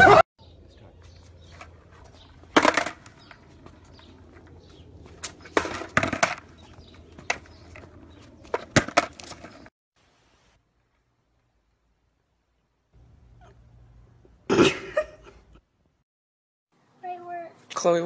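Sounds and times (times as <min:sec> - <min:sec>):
skateboard knocking on pavement: 0:05.2 - 0:09.6.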